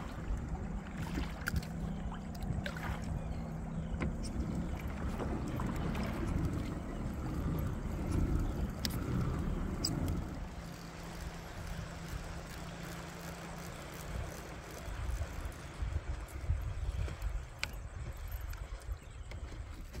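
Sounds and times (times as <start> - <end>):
water lapping against plastic hull: 0.0 - 20.0
wind rumbling on microphone: 0.0 - 20.0
faint ticks: 6.2 - 20.0.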